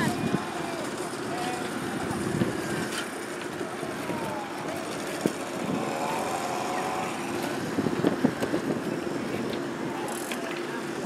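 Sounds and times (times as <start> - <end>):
motorboat engine running: 0.0 - 11.0
water noise: 0.0 - 11.0
wind: 0.0 - 11.0.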